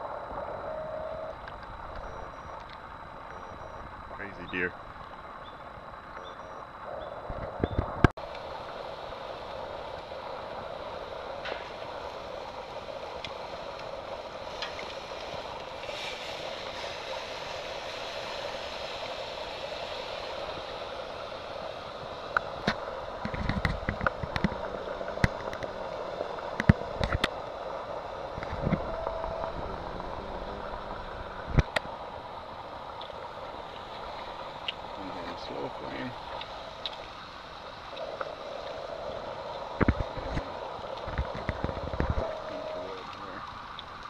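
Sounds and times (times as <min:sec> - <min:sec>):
steak sizzling on a grill: 0:08.2 - 0:23.2.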